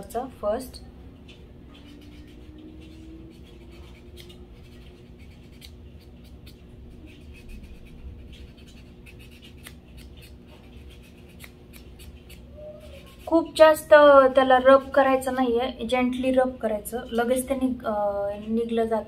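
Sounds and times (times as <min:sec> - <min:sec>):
nail buffer scratching a fingernail: 0:01.2 - 0:15.2.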